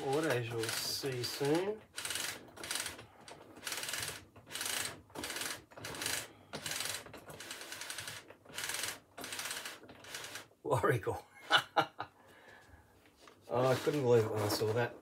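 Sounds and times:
roller mechanism rattling: 0.0s - 10.5s, 13.6s - 15.0s.

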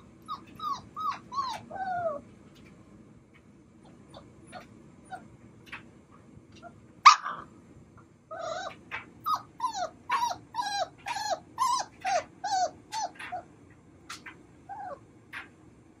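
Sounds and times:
puppies yelping and yipping: 0.0s - 2.3s, 3.8s - 5.3s, 8.3s - 13.5s, 14.1s - 15.5s.

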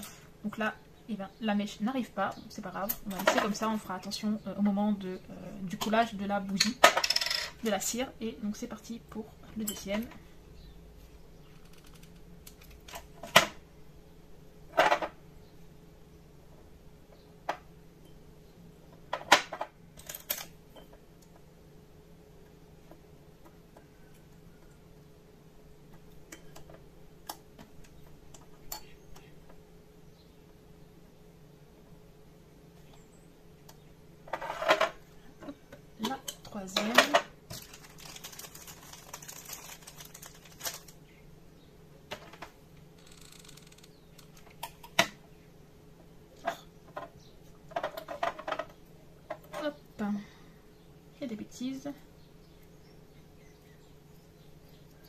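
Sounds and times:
faint steady hum: 0.0s - 55.0s
plastic bag crinkling: 37.5s - 41.1s.

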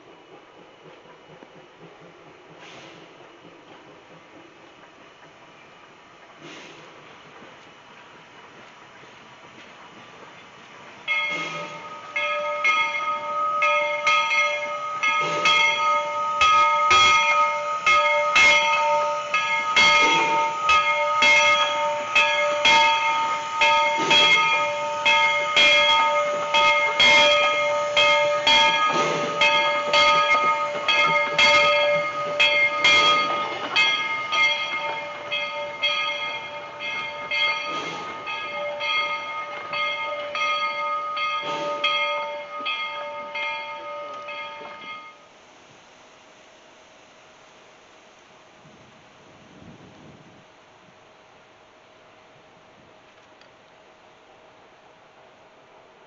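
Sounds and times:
train wheels clattering: 0.0s - 45.2s
steam locomotive bell ringing: 11.0s - 45.4s.

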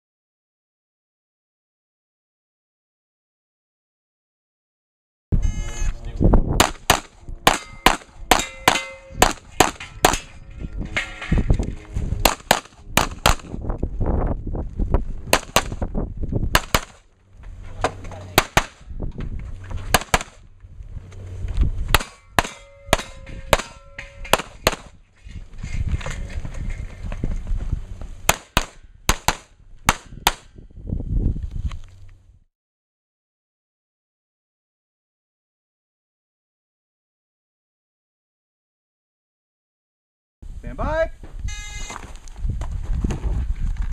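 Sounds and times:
handgun shots: 6.6s - 10.3s, 12.2s - 13.5s, 15.3s - 15.8s, 16.5s - 17.0s, 18.4s - 18.8s, 19.9s - 20.4s, 21.9s - 25.0s, 28.3s - 30.5s.

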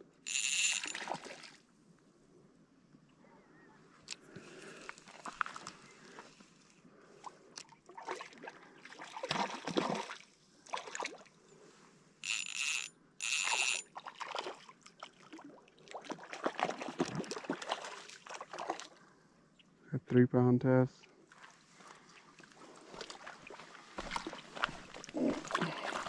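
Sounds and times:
water splashing and trickling: 0.3s - 1.6s, 7.6s - 11.3s, 12.2s - 19.0s, 21.3s - 26.0s.

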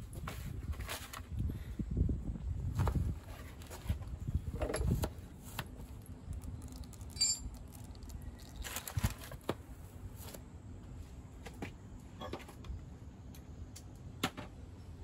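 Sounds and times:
paper rustling and crinkling: 0.1s - 1.4s, 4.9s - 9.6s
metallic clink: 7.1s - 7.6s.

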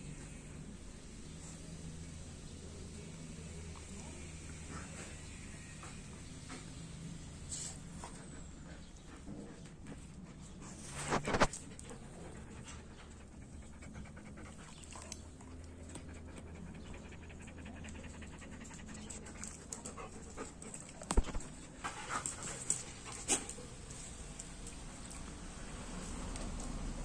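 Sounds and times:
dog panting: 7.6s - 27.0s.

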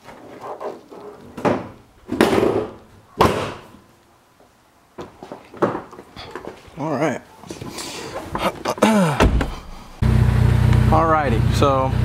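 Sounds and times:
car body panel slamming shut: 9.2s - 9.7s.

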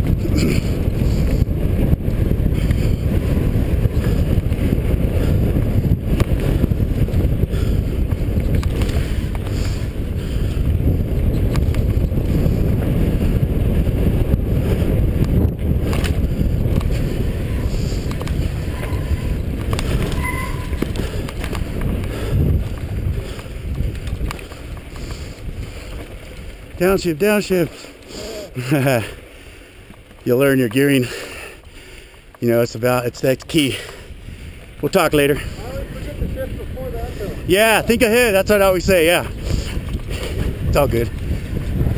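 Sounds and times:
bike knocking and rattling: 0.0s - 41.9s
wind buffeting microphone: 0.0s - 41.9s
tyres rolling on dirt and rock: 10.8s - 41.9s.

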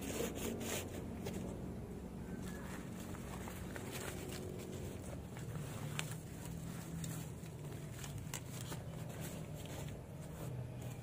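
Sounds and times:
steady low rumble: 0.9s - 10.4s
paper and plastic wrap crinkling: 2.4s - 11.0s.

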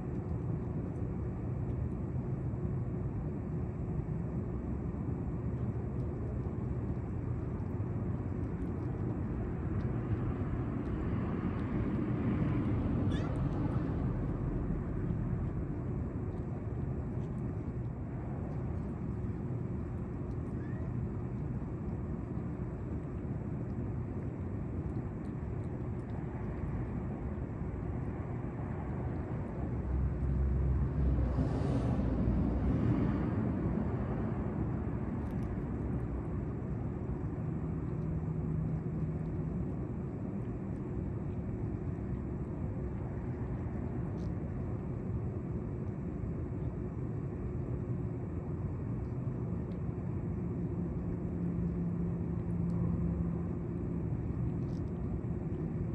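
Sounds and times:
traffic rumble: 0.0s - 55.9s.

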